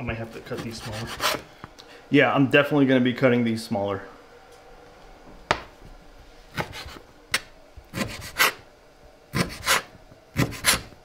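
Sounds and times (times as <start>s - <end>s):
knife chopping on cutting board: 6.5s - 7.0s, 8.0s - 8.6s, 9.4s - 11.0s.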